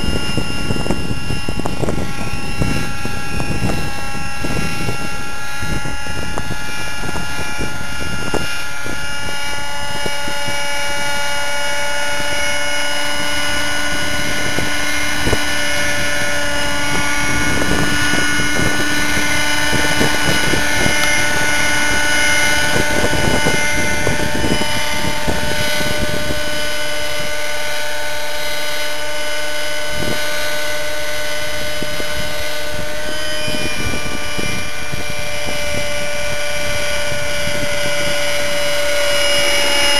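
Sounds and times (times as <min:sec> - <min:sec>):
model helicopter engine whine: 0:00.0 - 0:39.9.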